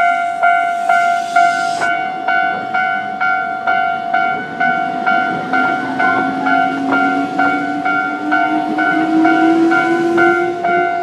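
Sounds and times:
level crossing bell ringing: 0:00.0 - 0:11.0.

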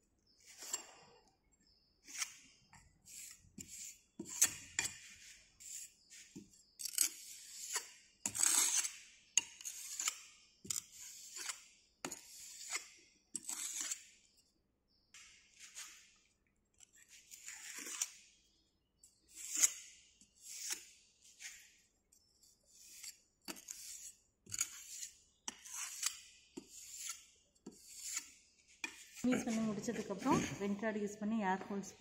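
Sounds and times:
trowel scraping sand: 0:00.4 - 0:01.0, 0:02.0 - 0:14.2, 0:15.5 - 0:16.2, 0:17.0 - 0:18.3, 0:19.3 - 0:21.8, 0:22.7 - 0:30.4.

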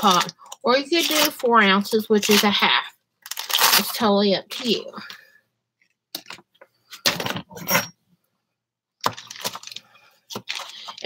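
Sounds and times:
foil wrapper crinkling: 0:03.2 - 0:04.0, 0:09.0 - 0:11.0.

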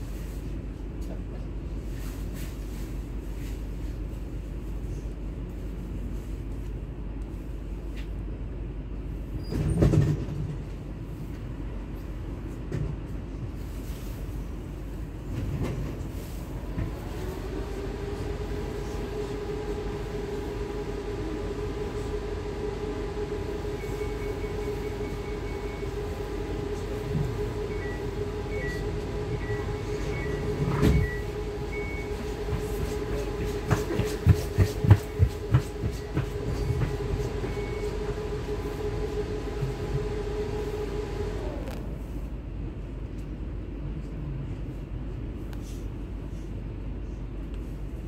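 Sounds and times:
electric train whine: 0:15.3 - 0:42.6.

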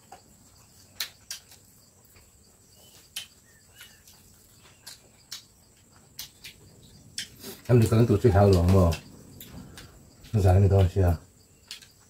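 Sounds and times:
insects buzzing: 0:00.0 - 0:12.0
faint bird chirps: 0:02.5 - 0:10.2.

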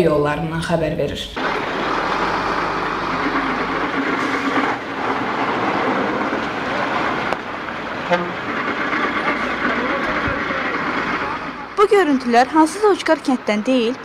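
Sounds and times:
traffic on wet road: 0:01.4 - 0:14.0
short horn toot: 0:08.1 - 0:08.4.

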